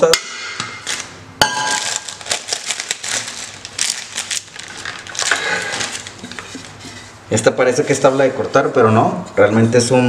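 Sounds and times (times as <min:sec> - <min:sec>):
plastic wrapping crinkling: 0:00.8 - 0:07.2.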